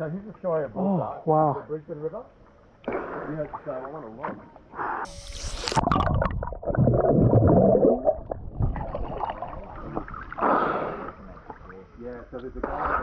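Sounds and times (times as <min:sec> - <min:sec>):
underwater gurgling and rumbling: 0:05.1 - 0:12.0.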